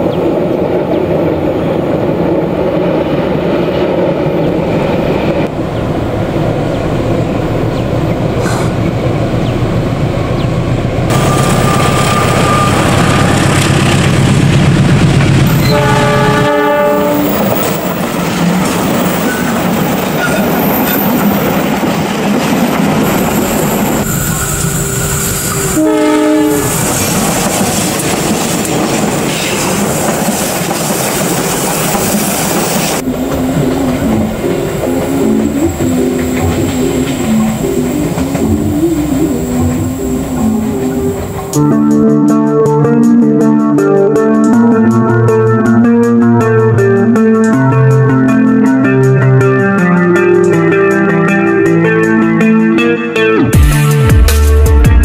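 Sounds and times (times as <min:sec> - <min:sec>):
diesel locomotive engine rumbling: 0:00.0 - 0:42.0
train wheels clattering on rails: 0:07.3 - 0:41.6
locomotive horn blasts: 0:11.1 - 0:13.7, 0:15.5 - 0:17.9, 0:25.5 - 0:26.9.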